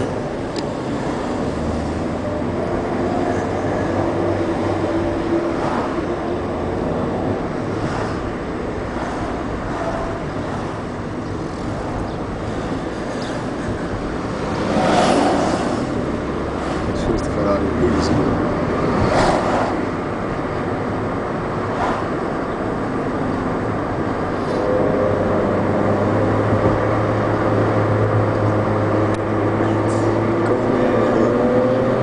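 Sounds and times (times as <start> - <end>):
road noise inside car: 0.0 - 32.0.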